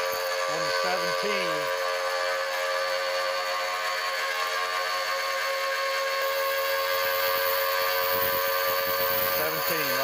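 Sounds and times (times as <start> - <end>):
milling machine cutting metal: 0.0 - 10.0
cutter chattering: 0.4 - 1.8, 9.0 - 10.0.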